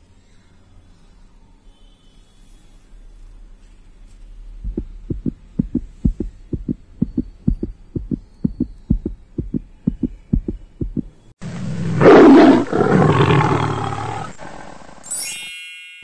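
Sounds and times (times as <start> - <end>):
low hum: 4.4 - 11.8
heartbeat double thump: 4.6 - 11.2.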